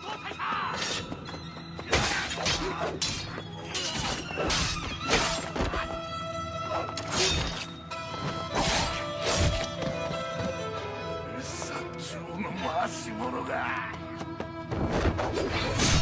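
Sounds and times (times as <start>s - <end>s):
dramatic background music: 0.0s - 16.0s
sword clashes: 1.9s - 5.5s, 7.0s - 7.7s.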